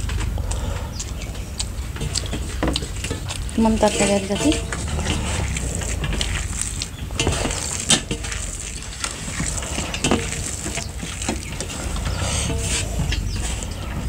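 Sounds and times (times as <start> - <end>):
spoons clinking on metal plates: 2.0 - 4.8.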